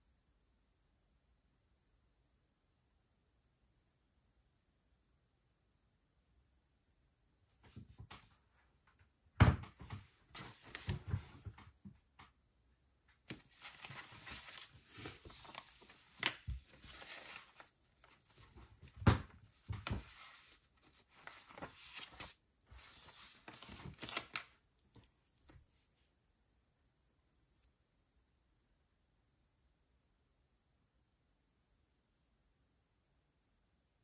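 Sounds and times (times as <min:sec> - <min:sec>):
paper sheets rustling: 0:09.7 - 0:11.7, 0:13.3 - 0:25.1.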